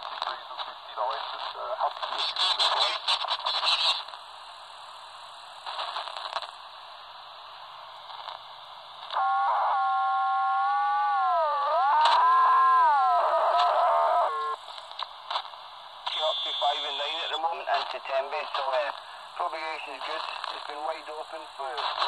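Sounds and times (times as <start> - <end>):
radio receiver hiss: 0.0 - 22.0
garbled radio burst: 0.6 - 4.1, 9.1 - 14.8, 16.0 - 22.0
steady buzzy tone: 9.2 - 15.0, 16.0 - 18.8.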